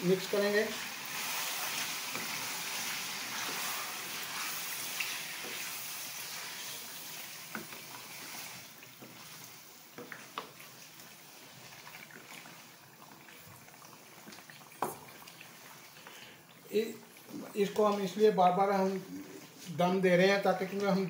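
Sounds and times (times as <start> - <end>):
chicken sizzling in a wok: 0.0 - 16.1.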